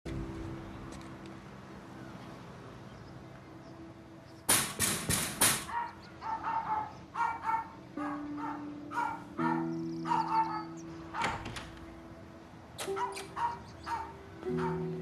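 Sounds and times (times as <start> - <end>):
loud bangs on metal door: 4.5 - 5.7.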